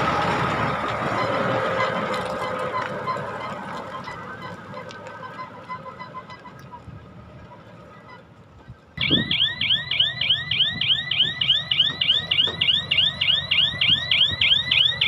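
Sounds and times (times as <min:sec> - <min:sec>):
diesel engine rumble: 0:00.0 - 0:15.0
back-up alarm warbling: 0:09.0 - 0:15.0.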